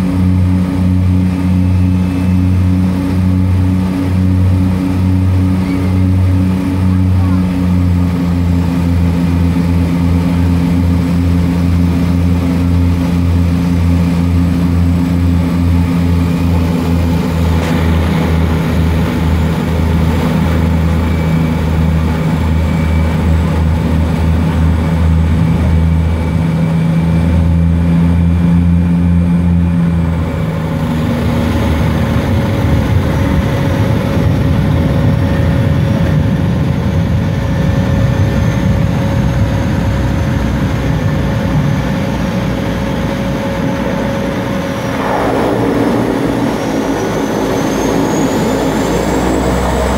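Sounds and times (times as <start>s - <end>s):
seaplane propeller engines droning: 0.0s - 49.9s.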